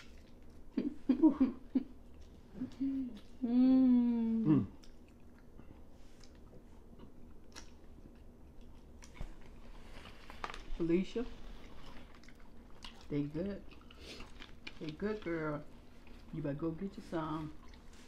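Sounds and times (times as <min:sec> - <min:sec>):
chewing: 0:00.0 - 0:00.8, 0:02.1 - 0:03.4, 0:04.7 - 0:16.4, 0:17.5 - 0:18.0
person humming mmm: 0:02.5 - 0:04.8
person murmuring: 0:02.6 - 0:04.8
clicks and smacks of eating: 0:04.8 - 0:10.7, 0:11.6 - 0:16.3.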